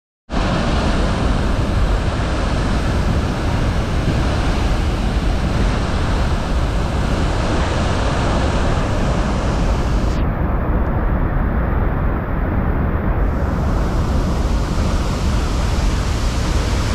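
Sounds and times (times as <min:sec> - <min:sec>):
waterfall rushing: 0:00.4 - 0:10.2, 0:13.3 - 0:16.9.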